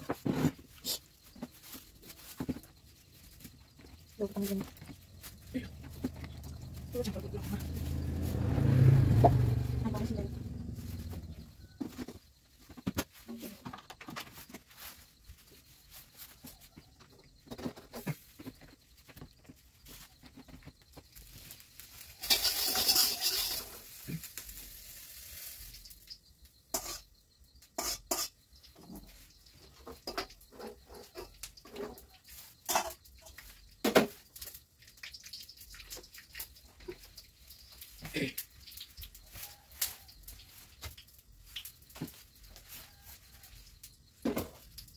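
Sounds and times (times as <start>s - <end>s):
pots and utensils clattering: 21.3s - 24.4s, 26.7s - 40.0s.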